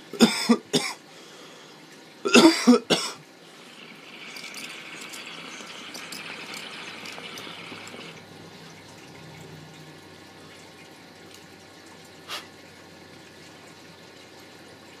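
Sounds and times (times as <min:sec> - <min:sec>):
water bubbling in glass pipe: 0:02.3 - 0:12.2.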